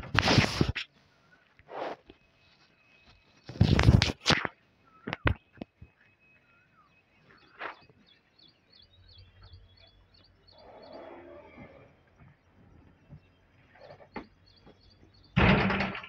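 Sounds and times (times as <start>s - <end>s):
noisy rustle: 0.0s - 4.7s
bird chirping: 0.9s - 15.8s.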